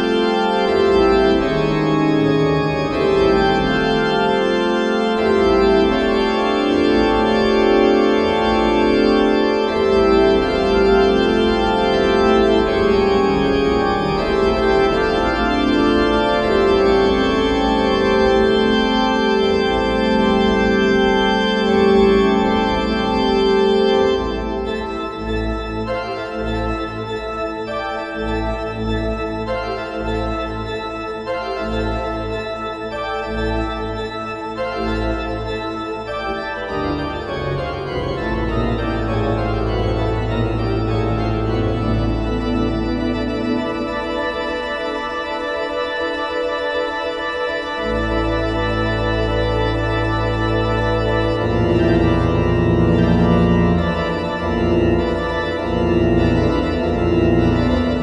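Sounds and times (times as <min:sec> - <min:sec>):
pipe organ playing: 0:00.0 - 0:58.0.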